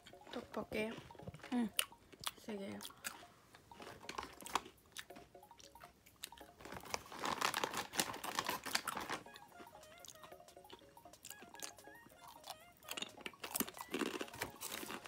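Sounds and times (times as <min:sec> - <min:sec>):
plastic packaging crinkling: 0:06.6 - 0:09.4, 0:13.4 - 0:15.0.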